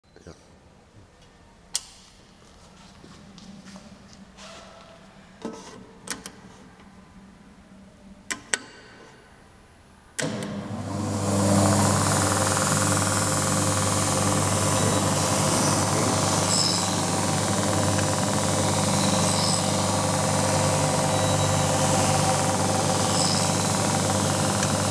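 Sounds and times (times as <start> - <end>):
machine motor humming: 10.2 - 24.9
grinding wheel hissing: 10.6 - 24.9.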